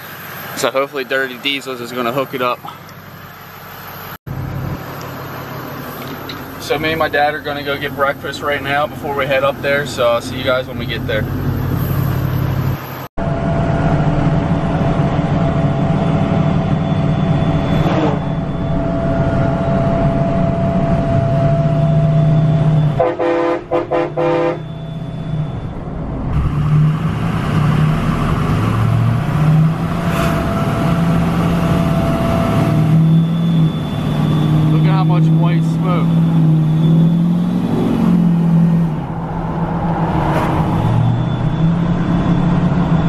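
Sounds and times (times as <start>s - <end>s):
diesel truck engine running: 0.0s - 43.0s
short horn toots: 23.0s - 24.8s.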